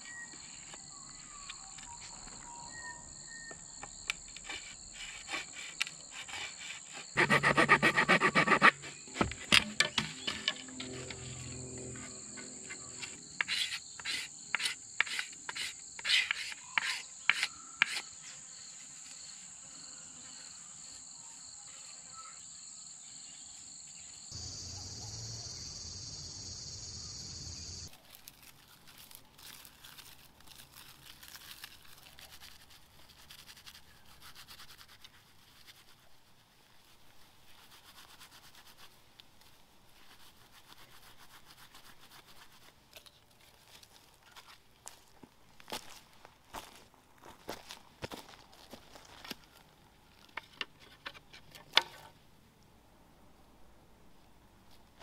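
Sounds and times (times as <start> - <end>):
knife scraping wooden stick: 4.1 - 18.2
insects shrilling: 24.3 - 32.9
rustling plant material: 27.9 - 51.0.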